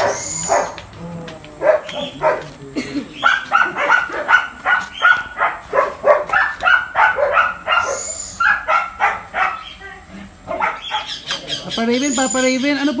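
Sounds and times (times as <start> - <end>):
dog barking: 0.0 - 0.9, 1.6 - 2.6, 3.2 - 11.3.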